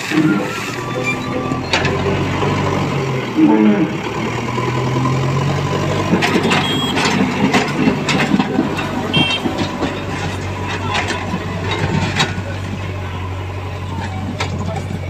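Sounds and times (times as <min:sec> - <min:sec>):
diesel engine running: 0:00.0 - 0:15.0
knocks and clatter on rubble: 0:06.0 - 0:15.0.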